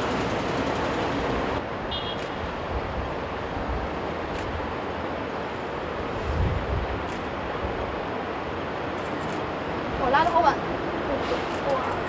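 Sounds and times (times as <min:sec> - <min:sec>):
distant jet engines roaring: 0:00.0 - 0:06.4
wind on microphone: 0:06.1 - 0:07.1.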